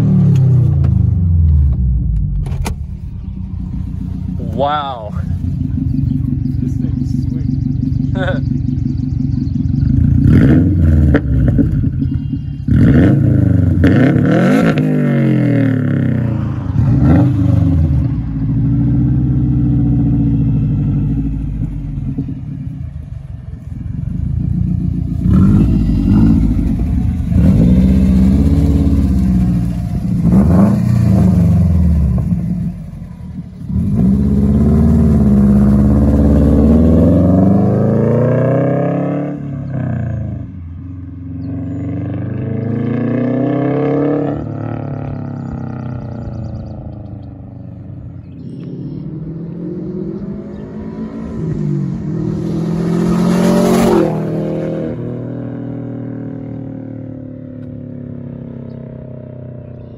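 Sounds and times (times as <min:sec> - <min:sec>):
car engine revving and accelerating: 0:00.0 - 0:59.9.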